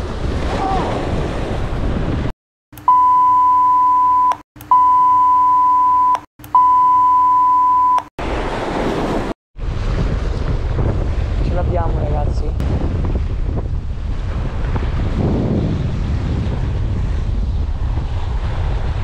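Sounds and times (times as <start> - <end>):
surf: 0.0 - 2.3
wind on microphone: 0.0 - 2.4, 8.3 - 19.0
high-pitched censor beeps: 2.8 - 8.1.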